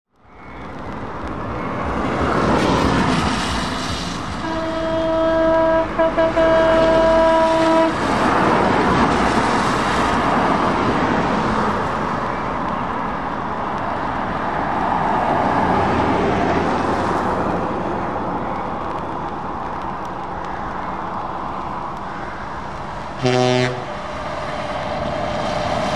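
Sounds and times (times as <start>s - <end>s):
vehicle engine noise: 0.1s - 25.9s
tyres hissing on wet road: 0.2s - 25.9s
car horn: 4.4s - 8.0s, 23.2s - 23.9s.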